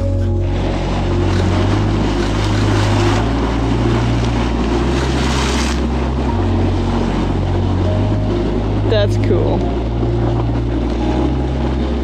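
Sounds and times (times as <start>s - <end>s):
background music with low notes: 0.0s - 12.0s
steady rushing noise: 0.0s - 12.0s.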